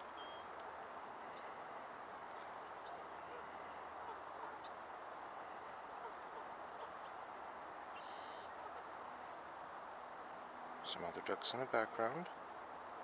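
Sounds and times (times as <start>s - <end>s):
faint high chirps: 0.0s - 0.5s, 6.7s - 8.6s
outdoor background hiss: 0.0s - 13.0s.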